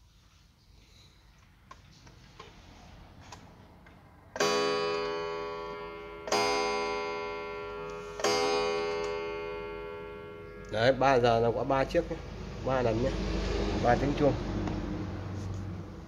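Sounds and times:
wall clock gong striking: 4.4s - 16.0s.

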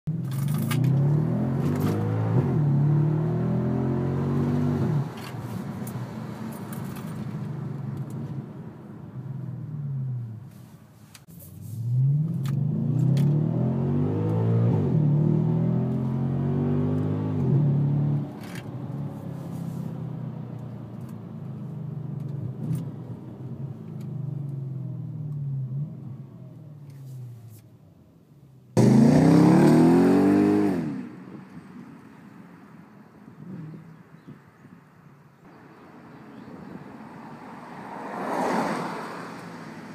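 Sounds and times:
car engine revving: 11.8s - 18.6s, 28.8s - 31.1s.

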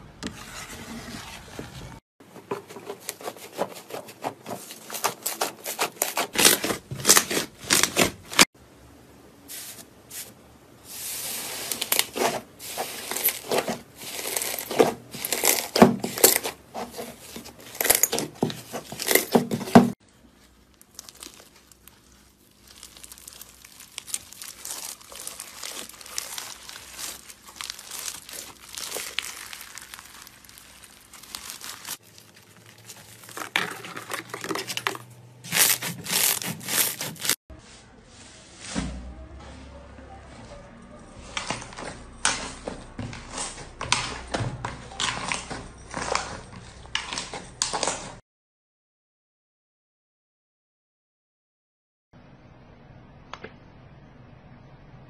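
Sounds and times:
slime crackling and popping: 20.7s - 33.4s
slime squeezed and stretched by hand: 20.8s - 33.1s.

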